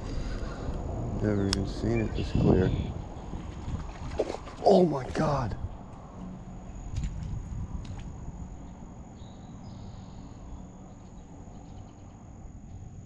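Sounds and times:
wind rumble on microphone: 0:00.0 - 0:13.0
high-pitched insect drone: 0:06.0 - 0:13.0.

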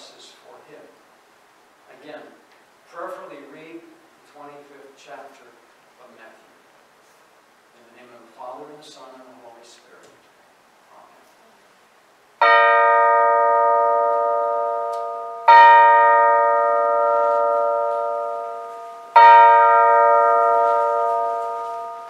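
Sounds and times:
small bell ringing: 0:12.6 - 0:22.0.

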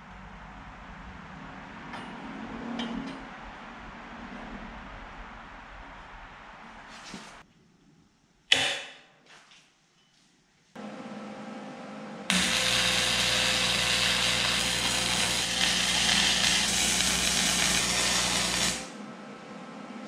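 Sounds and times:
low electrical hum: 0:10.8 - 0:20.0
welder arc crackling: 0:12.3 - 0:19.0.

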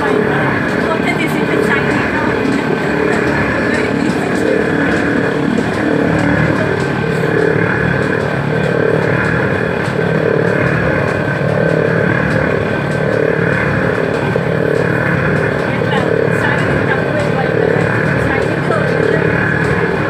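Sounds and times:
oil mill machine noise: 0:00.0 - 0:20.0.

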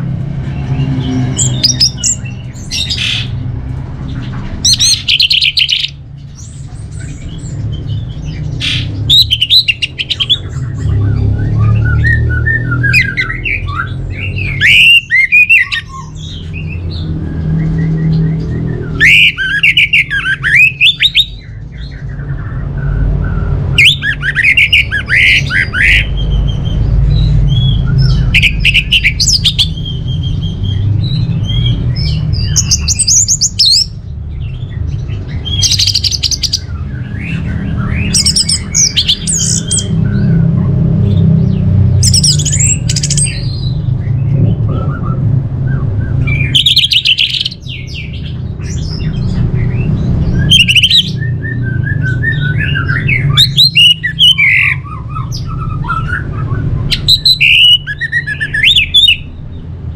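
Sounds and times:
steady low rumble: 0:25.0 - 0:47.0.

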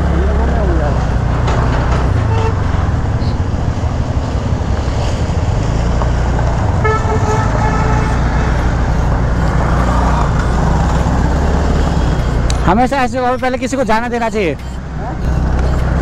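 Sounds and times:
vehicle engine hum: 0:00.0 - 0:16.0
vehicle horn honking: 0:02.2 - 0:02.7, 0:06.8 - 0:08.7.

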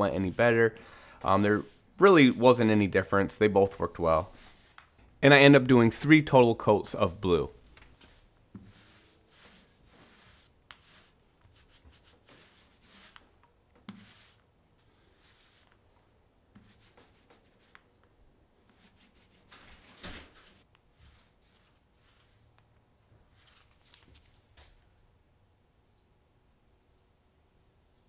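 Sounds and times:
paint roller swishing on wood: 0:00.0 - 0:02.6, 0:07.9 - 0:15.9, 0:16.6 - 0:17.9, 0:18.6 - 0:22.5.

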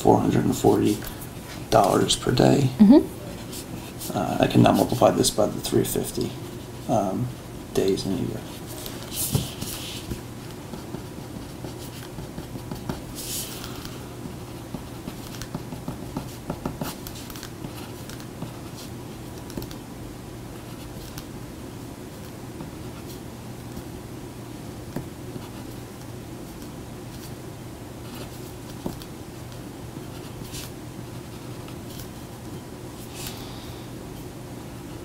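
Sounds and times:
low room hum: 0:00.0 - 0:35.0
pen scratching on paper: 0:08.5 - 0:13.6, 0:14.3 - 0:18.9.

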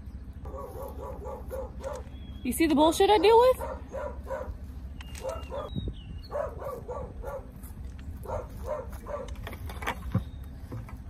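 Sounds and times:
dog yipping barks: 0:00.4 - 0:02.2, 0:03.1 - 0:04.6, 0:05.2 - 0:07.5, 0:08.2 - 0:09.4.

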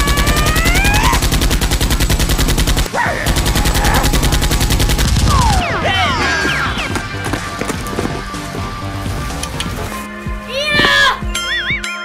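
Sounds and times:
person crying out: 0:00.0 - 0:01.3
rapid automatic gunfire: 0:00.0 - 0:05.7.

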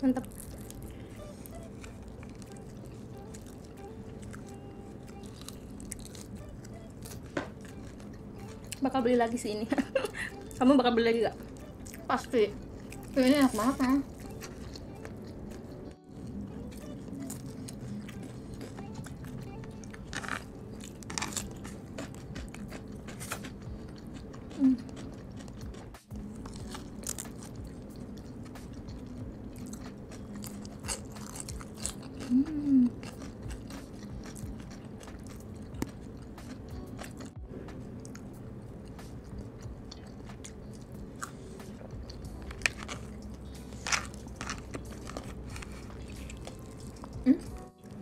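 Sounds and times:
crunching fried chicken: 0:00.0 - 0:10.6, 0:11.3 - 0:37.4, 0:38.0 - 0:48.0.

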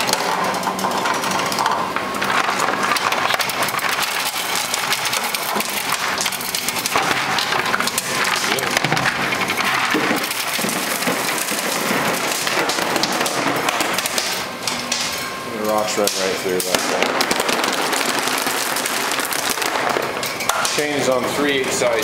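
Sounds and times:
rocks tumbling into plastic tub: 0:16.7 - 0:20.1.

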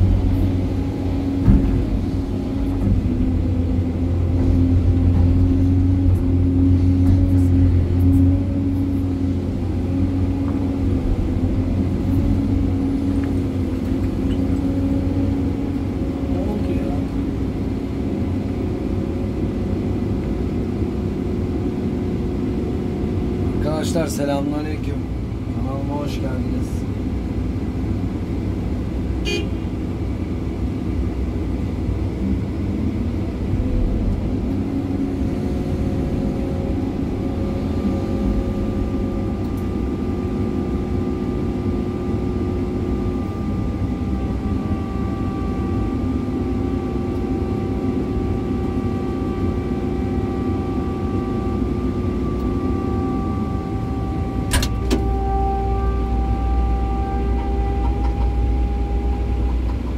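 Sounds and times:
excavator diesel engine running: 0:00.0 - 0:59.9
steady whining tones: 0:00.0 - 0:59.9
sharp click of cab door: 0:54.5 - 0:55.0.

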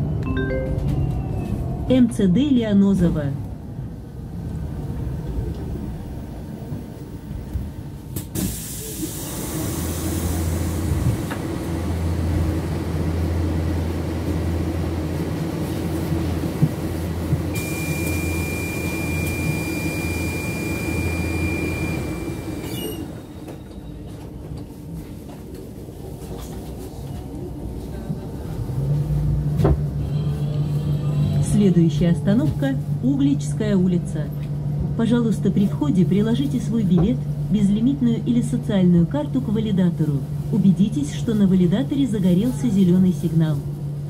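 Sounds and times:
steady high tone: 0:00.2 - 0:01.8.

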